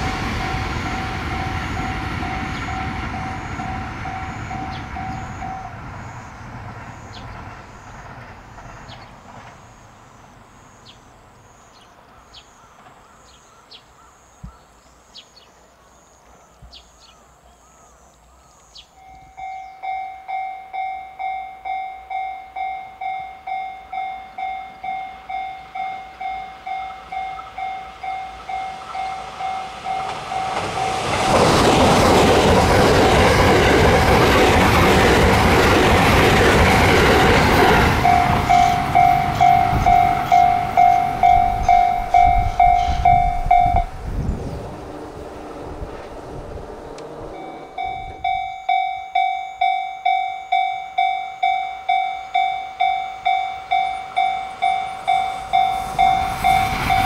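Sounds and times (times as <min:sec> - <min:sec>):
level crossing alarm ringing: 0:00.0 - 0:06.2, 0:19.0 - 0:44.0, 0:47.3 - 0:57.0
electric train passing: 0:00.0 - 0:14.4, 0:18.8 - 0:57.0
birds chirping: 0:00.5 - 0:10.0, 0:10.7 - 0:20.2, 0:36.7 - 0:48.6.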